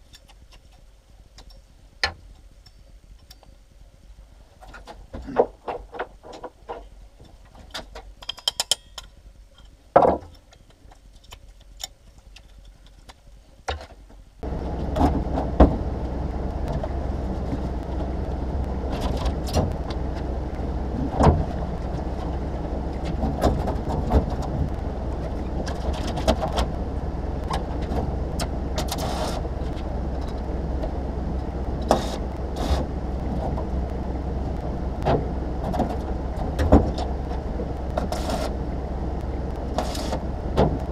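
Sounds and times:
welding machine humming: 0:14.4 - 0:40.9.

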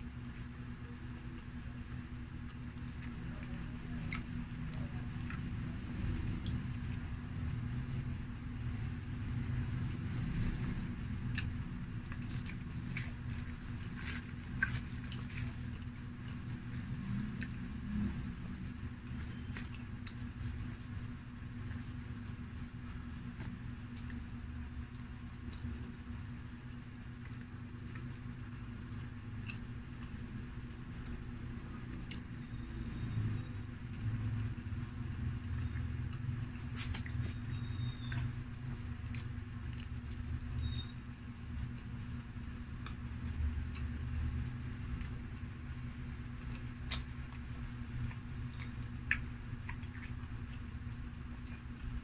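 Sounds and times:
soft chewing: 0:00.0 - 0:08.7, 0:09.3 - 0:52.0
steady low hum: 0:00.0 - 0:52.0
baking paper crinkling: 0:12.1 - 0:17.4, 0:18.2 - 0:23.4.

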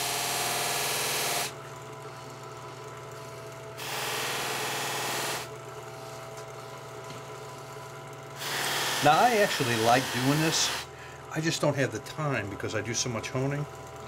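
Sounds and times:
bench buffer motor hum: 0:00.0 - 0:14.0
blade on buffing wheel hissing: 0:03.8 - 0:05.5, 0:08.4 - 0:10.9.

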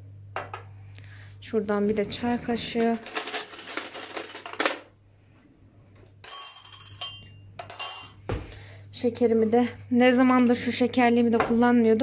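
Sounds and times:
metal teaspoons clattering: 0:02.9 - 0:04.8
teaspoon clinking in glass mug: 0:06.2 - 0:08.2.

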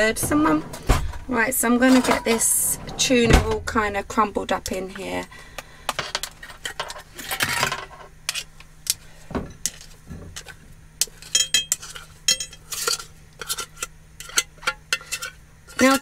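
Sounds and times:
utensil scraping and clinking dish: 0:09.6 - 0:16.0.

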